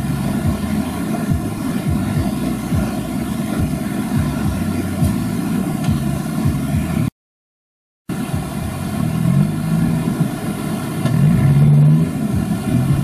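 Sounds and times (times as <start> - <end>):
engine droning steadily: 0.0 - 7.1, 8.1 - 13.0.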